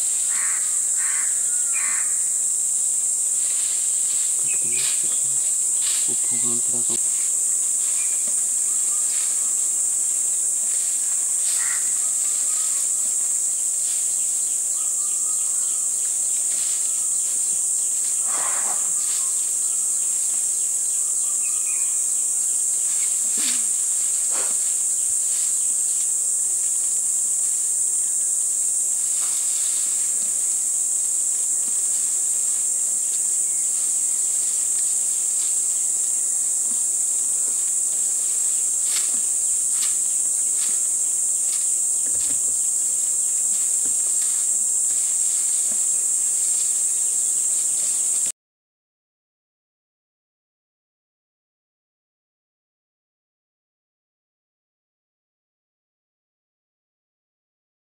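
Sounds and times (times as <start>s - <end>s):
rustles: 0.0s - 14.8s, 15.8s - 20.8s, 22.0s - 48.3s
insect chorus drone: 0.0s - 48.3s.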